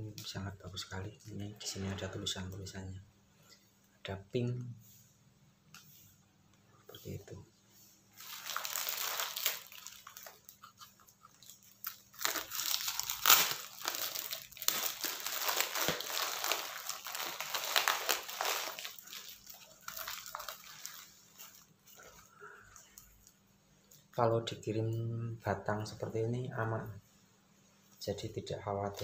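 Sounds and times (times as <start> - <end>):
paper and cardboard crinkling: 8.2 - 23.3.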